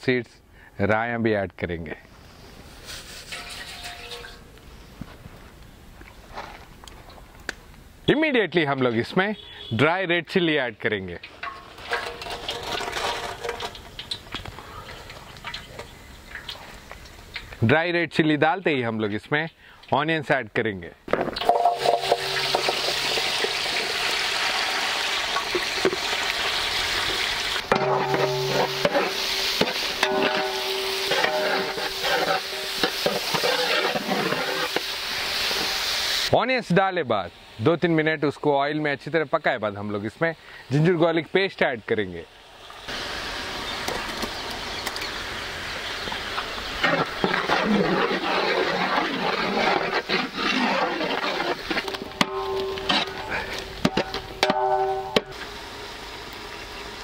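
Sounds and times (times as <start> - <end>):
metal ladle scraping a pot: 2.8 - 4.4, 11.4 - 14.0, 21.4 - 23.8, 27.6 - 35.0, 46.7 - 55.4
onions sizzling in hot oil: 21.4 - 36.4, 42.2 - 57.0.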